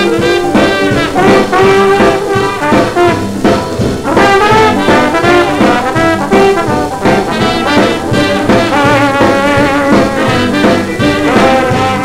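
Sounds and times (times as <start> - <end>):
swing band on old record: 0.0 - 12.0.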